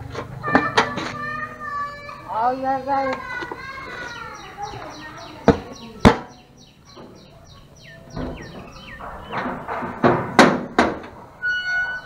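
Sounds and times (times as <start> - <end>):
bird chirping: 2.3 - 9.8, 11.4 - 12.0.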